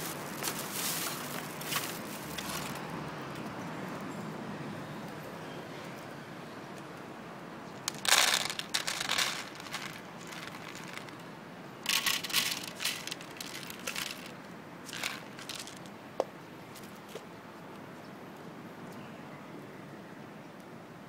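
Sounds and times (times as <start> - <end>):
dry kibble rattling into tray: 7.9 - 11.2, 11.8 - 15.9.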